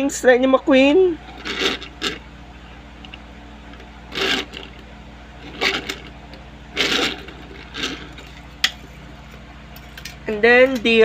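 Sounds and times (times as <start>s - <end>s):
steady low hum: 0.0s - 11.0s
toy cars rolling on tabletop: 1.3s - 2.2s, 4.1s - 4.8s, 5.4s - 6.1s, 6.8s - 8.4s.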